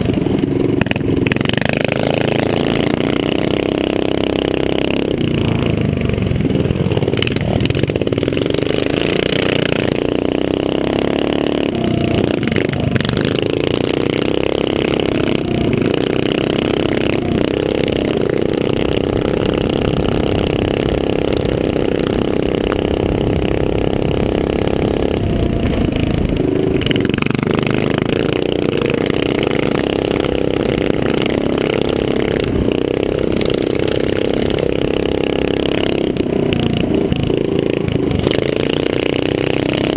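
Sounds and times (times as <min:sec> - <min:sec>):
dirt bike engine running hard: 0:00.0 - 0:39.9.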